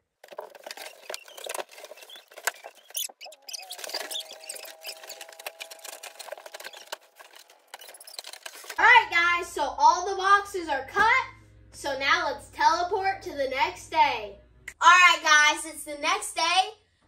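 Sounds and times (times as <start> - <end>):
cardboard scratching and scraping: 0.0 - 8.8
squeaky held tone: 0.8 - 8.8.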